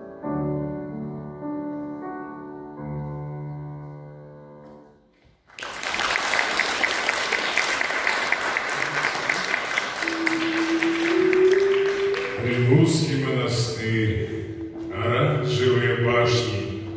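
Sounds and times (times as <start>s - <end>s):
grand piano chords: 0.0s - 5.4s, 8.8s - 16.9s
audience applause: 5.5s - 12.9s.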